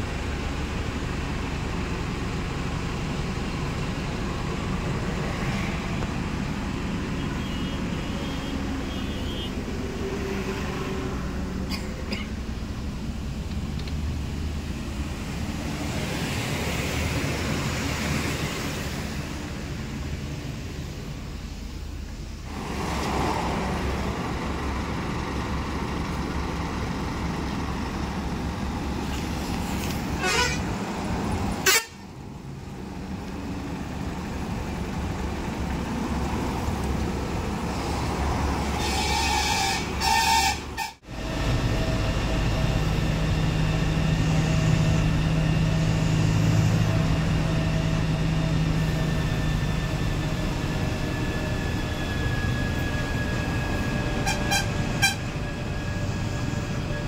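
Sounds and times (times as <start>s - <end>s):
bus engine rumble: 0.0s - 57.0s
road traffic noise: 0.0s - 57.0s
vehicle horn honking: 7.2s - 9.6s, 30.2s - 30.7s, 31.6s - 32.0s, 54.2s - 55.3s.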